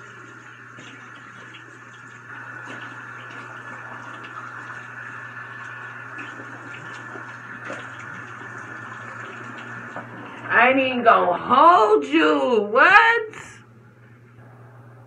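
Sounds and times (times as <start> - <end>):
tap running into a sink: 0.0 - 5.0, 5.6 - 10.4
water splashing and dripping: 0.0 - 10.5.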